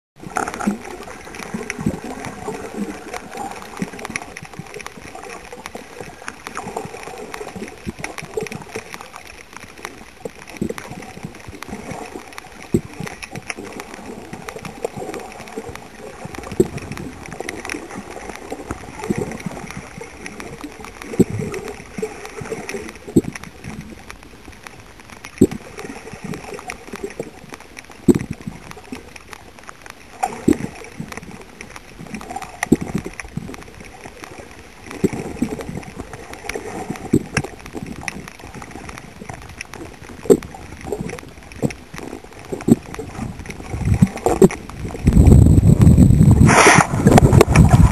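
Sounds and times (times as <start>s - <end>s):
water splashing and gurgling: 0.2s - 47.9s.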